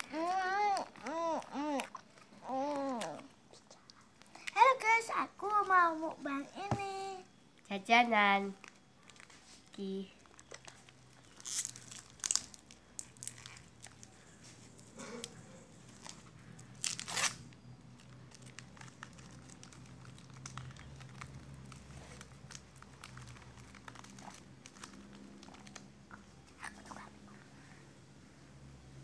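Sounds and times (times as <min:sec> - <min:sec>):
plastic wrappers crinkling: 0:00.0 - 0:03.3, 0:06.9 - 0:26.0.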